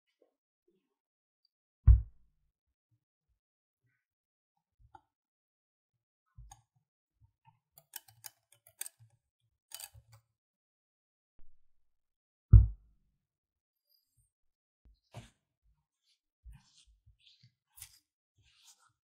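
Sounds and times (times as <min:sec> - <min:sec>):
dull thump: 0:12.6 - 0:12.8.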